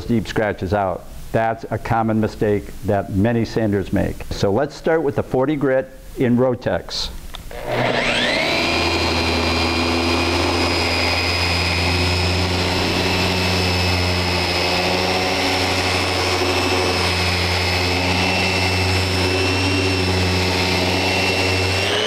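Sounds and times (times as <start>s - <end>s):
sander motor whining: 7.4s - 22.0s.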